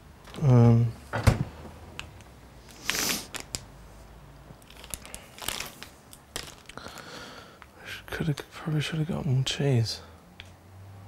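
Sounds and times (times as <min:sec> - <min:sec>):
plastic bag crinkling: 0:02.7 - 0:03.6, 0:04.6 - 0:07.2.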